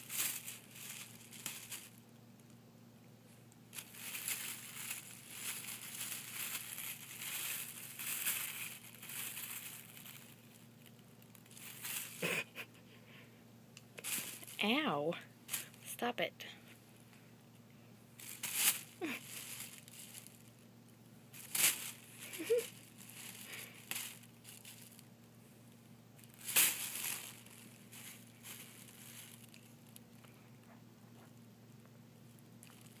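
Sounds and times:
plastic bag crinkling: 0:00.0 - 0:02.0, 0:03.7 - 0:12.7, 0:14.0 - 0:14.7, 0:18.2 - 0:20.6, 0:21.3 - 0:25.1, 0:26.2 - 0:30.1, 0:32.6 - 0:33.0.

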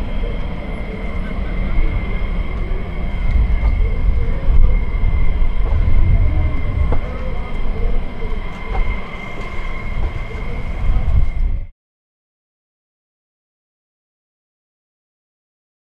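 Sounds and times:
jet engines taxiing: 0:00.0 - 0:11.7.

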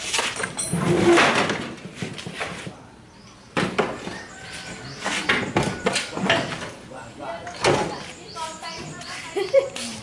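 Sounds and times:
metal clattering and scraping: 0:00.0 - 0:02.8.

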